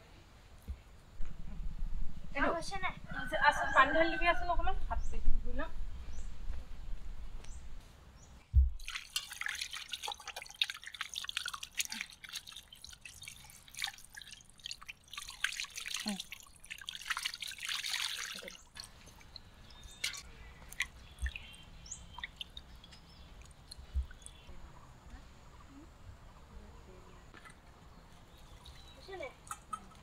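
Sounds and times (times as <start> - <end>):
water pouring into bowl: 8.8 - 22.7
hands rinsing fish splashing: 8.8 - 24.4.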